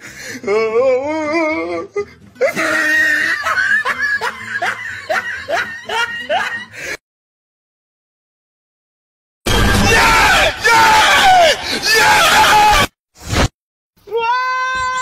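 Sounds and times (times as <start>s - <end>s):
man sobbing: 0.1s - 7.0s.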